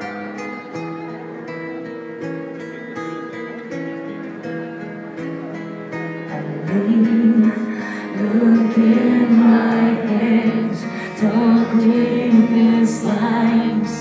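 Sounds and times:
acoustic guitars strumming: 0.0s - 14.0s
person singing: 6.3s - 14.0s.

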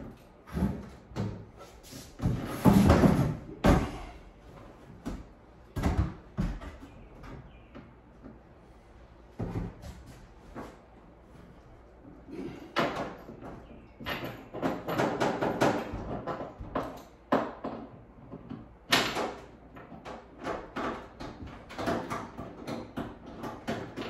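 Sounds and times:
hardware knocking on wood and metal: 12.4s - 24.0s.

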